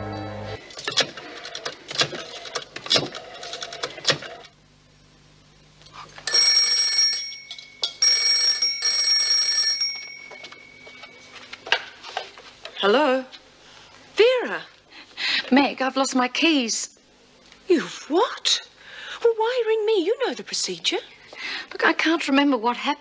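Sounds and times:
landline telephone ringing: 0:06.3 - 0:11.4.

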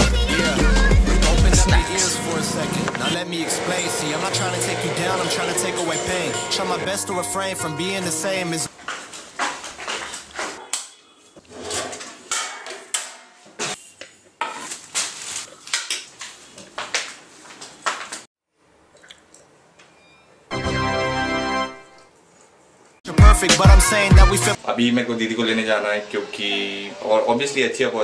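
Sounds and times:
plastic bag rustling: 0:14.4 - 0:18.2
keyboard chord: 0:20.5 - 0:22.1.

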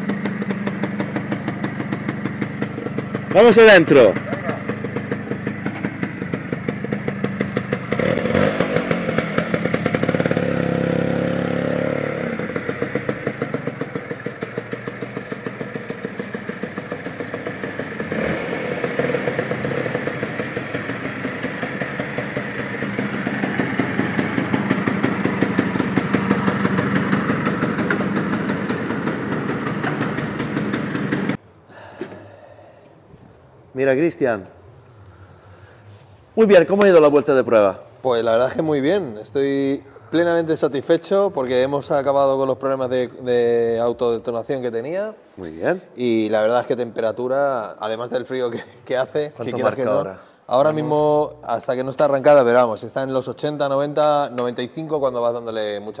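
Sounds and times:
scooter engine running: 0:00.0 - 0:31.4.

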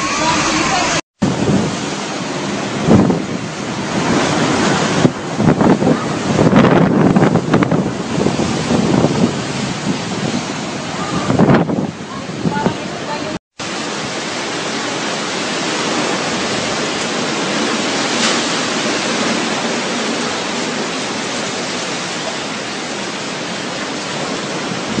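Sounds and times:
heavy rain: 0:00.0 - 0:25.0
strong wind: 0:00.0 - 0:25.0.

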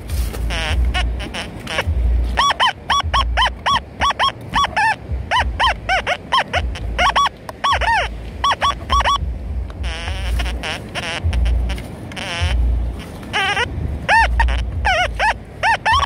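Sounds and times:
metal detector tones: 0:00.4 - 0:09.2, 0:13.4 - 0:16.0.

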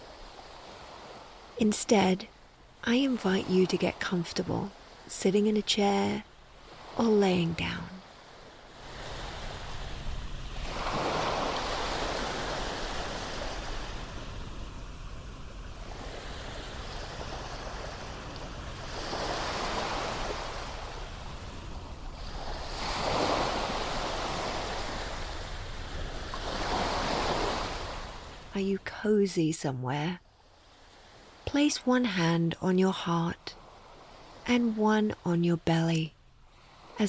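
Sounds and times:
ocean waves washing onto shore: 0:00.0 - 0:29.0.

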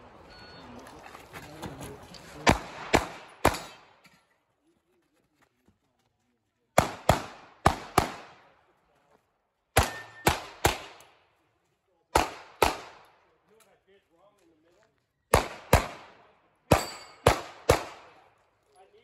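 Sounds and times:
pistol shots echoing: 0:02.4 - 0:04.0, 0:06.8 - 0:08.6, 0:09.7 - 0:11.2, 0:12.1 - 0:13.2, 0:15.3 - 0:18.4.

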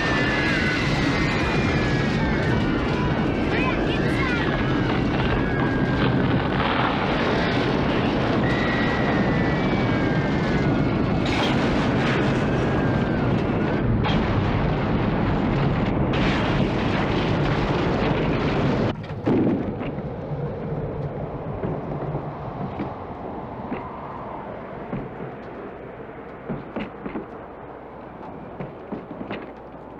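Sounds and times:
debris cracking and crashing: 0:00.0 - 0:23.0
loud wind roar: 0:00.0 - 0:29.9.

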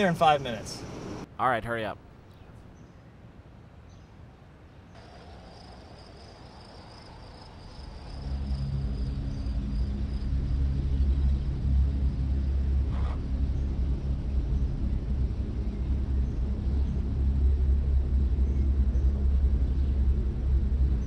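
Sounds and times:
low rumbling drone: 0:05.0 - 0:21.0.

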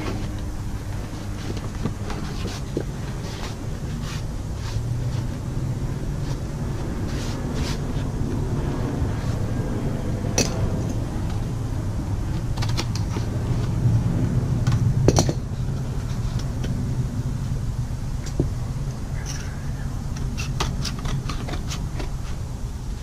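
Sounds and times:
cardboard rustling and crackling: 0:00.0 - 0:08.3
steady low hum: 0:00.0 - 0:23.0.

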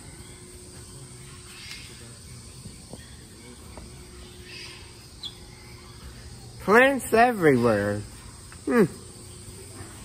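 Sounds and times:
low hum with faint hiss: 0:00.0 - 0:10.0.

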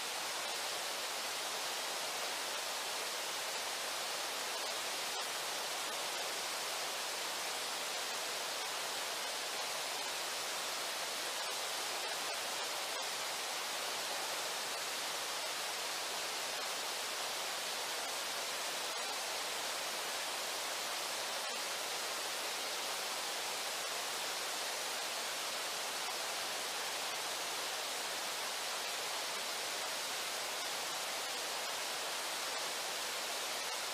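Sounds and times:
river water rushing: 0:00.0 - 0:33.9.

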